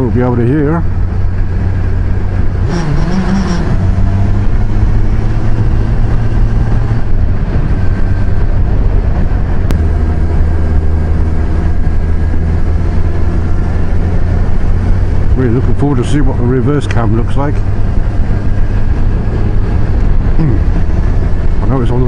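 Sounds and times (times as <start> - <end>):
motorcycle engine cruising: 0.0 - 22.0
wind and road rush: 0.0 - 22.0.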